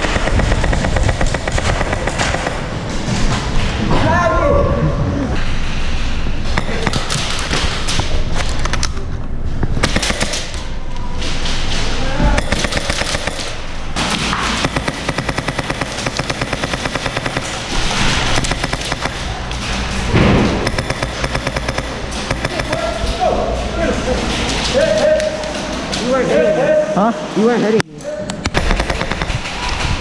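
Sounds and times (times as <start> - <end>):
airsoft rifles firing bursts: 0.0 - 2.8, 9.8 - 10.7, 12.4 - 19.4, 20.5 - 23.0, 28.4 - 29.7.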